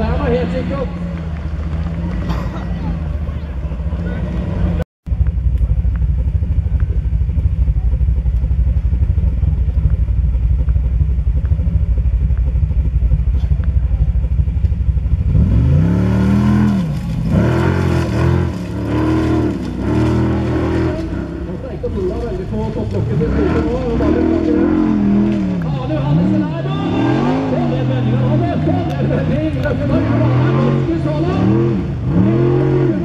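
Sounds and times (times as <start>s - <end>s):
low rumble: 0.0s - 33.0s
car engine revving hard: 15.2s - 21.6s, 22.9s - 33.0s.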